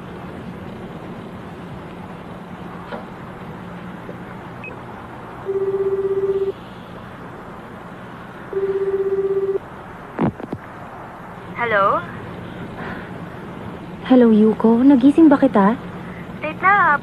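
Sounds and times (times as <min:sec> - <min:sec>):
steady low hum: 0:00.0 - 0:17.0
telephone ringback tone: 0:05.5 - 0:06.6, 0:08.5 - 0:09.6.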